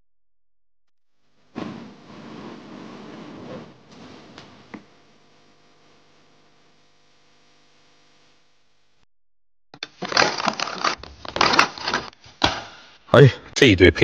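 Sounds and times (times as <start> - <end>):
faint steady hum: 3.9 - 9.0.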